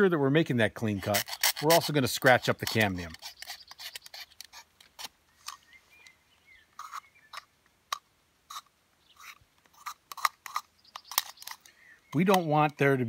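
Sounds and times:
knife blade scraping branch: 0.9s - 5.6s, 6.8s - 7.5s, 8.5s - 11.7s.

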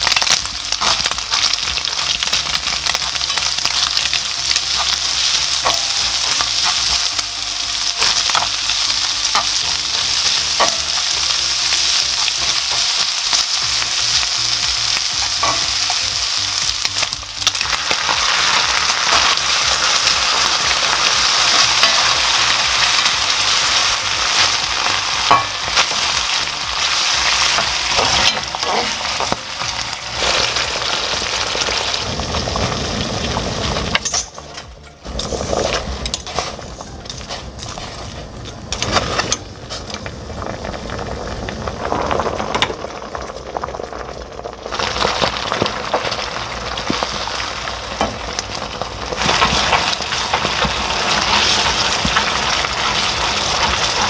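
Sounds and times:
sauce sizzling in a frying pan: 0.0s - 34.5s, 38.8s - 54.0s
water boiling in a pot: 0.0s - 54.0s
spatula stirring: 0.7s - 31.8s.

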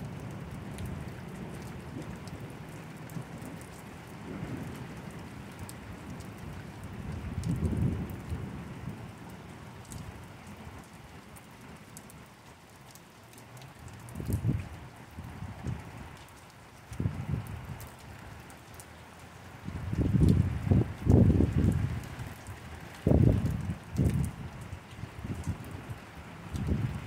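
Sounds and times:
rain falling: 0.0s - 27.0s
raindrops ticking close by: 0.0s - 27.0s
thunder rumbling: 4.1s - 9.0s, 19.7s - 22.1s, 23.0s - 25.9s.

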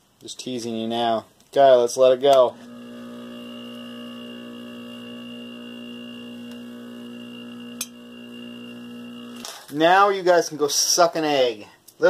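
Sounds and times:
vacuum pump humming: 2.3s - 9.7s.

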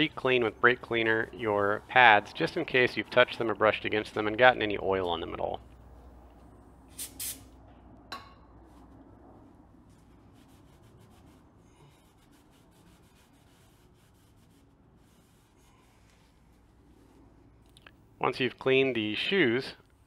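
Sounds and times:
rag wiping metal: 0.0s - 5.4s
short hisses: 6.9s - 7.5s.

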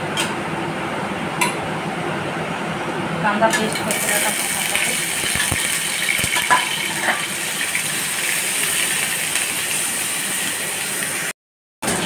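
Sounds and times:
onion paste sizzling in oil: 3.7s - 11.3s.

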